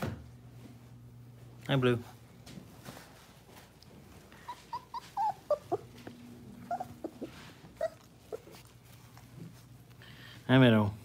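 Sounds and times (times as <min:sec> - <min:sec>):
puppies whimpering and yipping: 0:04.3 - 0:09.3.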